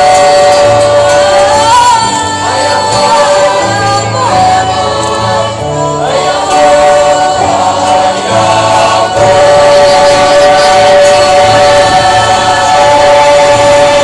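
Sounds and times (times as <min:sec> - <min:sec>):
choir singing a hymn: 0:00.0 - 0:14.0.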